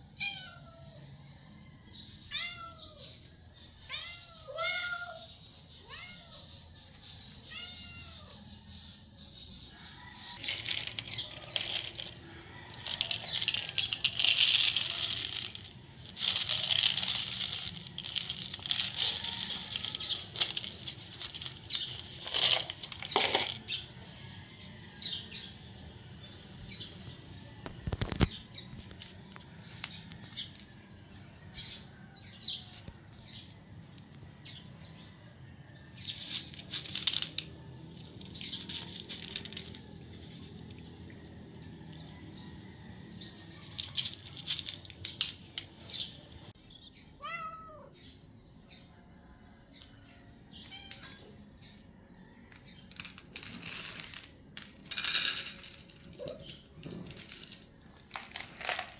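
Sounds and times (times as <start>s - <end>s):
rustling handling noises: 10.1s - 23.6s, 36.1s - 40.8s, 43.7s - 45.8s, 52.9s - 58.9s.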